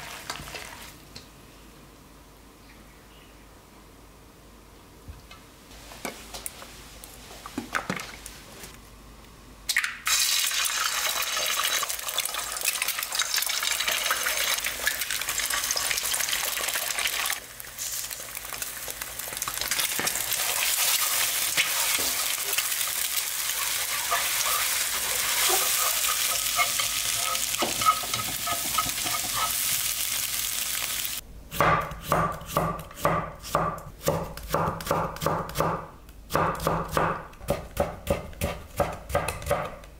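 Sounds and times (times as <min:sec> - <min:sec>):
eggs sizzling in frying pan: 0:10.0 - 0:31.2
chopsticks stirring eggs: 0:23.4 - 0:29.7
knife chopping on wooden board: 0:31.6 - 0:39.9.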